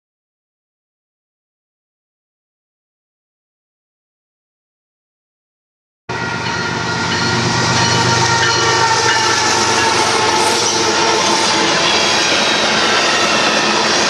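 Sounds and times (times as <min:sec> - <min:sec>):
freight train passing: 0:06.1 - 0:14.0
steady high tones: 0:06.3 - 0:14.0.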